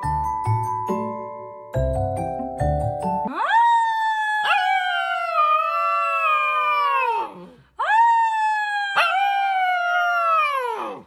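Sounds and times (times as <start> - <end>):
puppy howling: 3.3 - 11.0.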